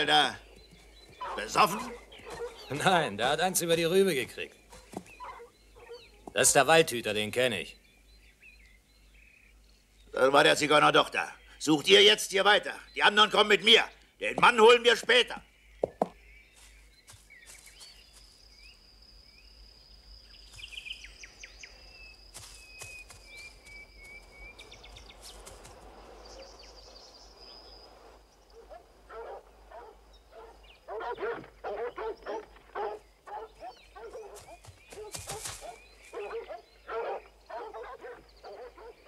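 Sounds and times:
faint bird chirping: 0.0 - 39.0
dogs barking: 1.2 - 2.9, 4.7 - 6.3, 28.5 - 39.0.

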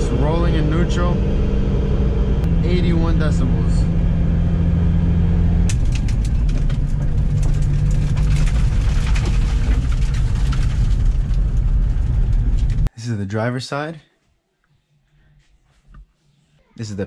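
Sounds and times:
car engine running: 0.0 - 12.9
tyre and road drone: 0.0 - 12.9.

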